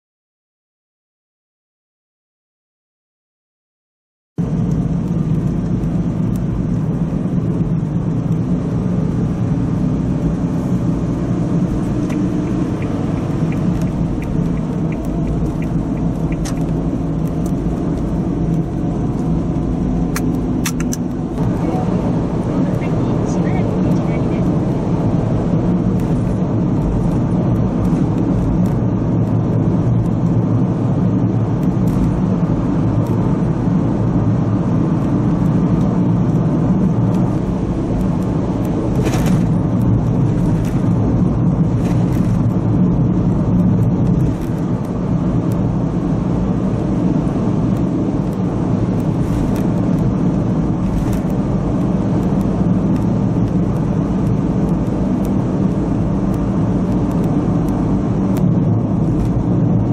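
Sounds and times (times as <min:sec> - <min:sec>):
car road noise in cabin: 0:04.4 - 0:59.9.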